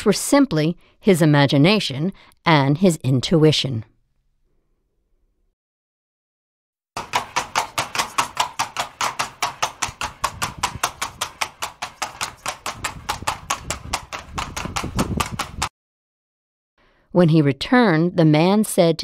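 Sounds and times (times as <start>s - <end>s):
horse hooves galloping: 7.0s - 15.7s.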